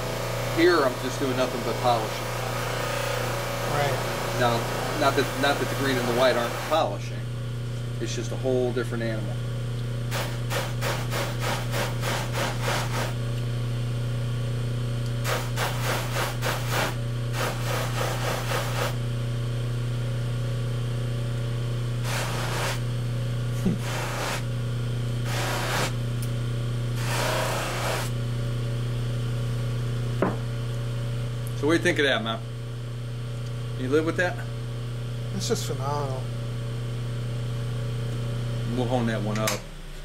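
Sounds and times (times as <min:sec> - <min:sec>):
bench buffer motor hum: 0:00.0 - 0:40.0
razor rubbing on buffing wheel: 0:15.3 - 0:19.0, 0:22.0 - 0:22.8, 0:23.7 - 0:24.5, 0:25.3 - 0:26.0, 0:27.0 - 0:28.2.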